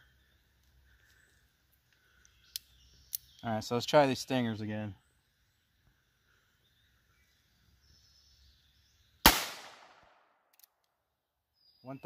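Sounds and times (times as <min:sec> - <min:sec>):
revolver gunshot with echo: 0:09.3 - 0:10.2.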